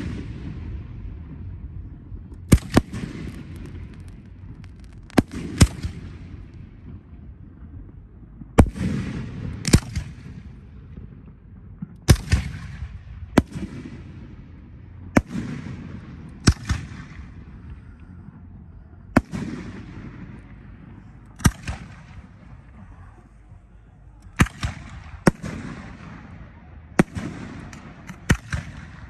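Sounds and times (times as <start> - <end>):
fireworks bangs with rumbling echo: 0.0 - 29.0.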